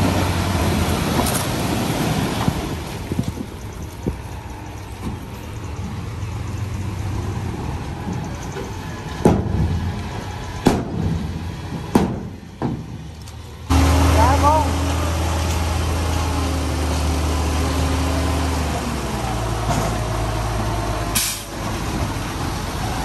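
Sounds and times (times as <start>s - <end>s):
truck engine running low: 0.0s - 23.0s
tailgate knocks: 11.8s - 13.0s.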